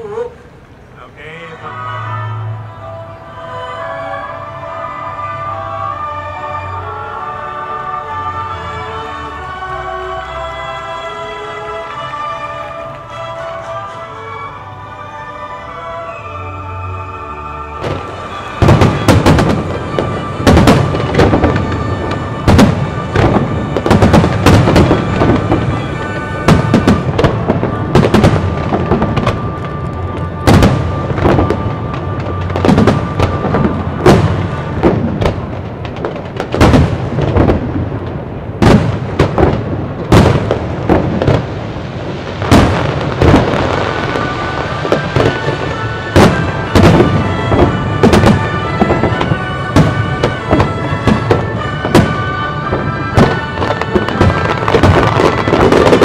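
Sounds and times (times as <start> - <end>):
crackle and rumble of fireworks: 0.0 - 56.0
music: 1.5 - 35.0, 42.7 - 56.0
firework bangs: 15.8 - 56.0.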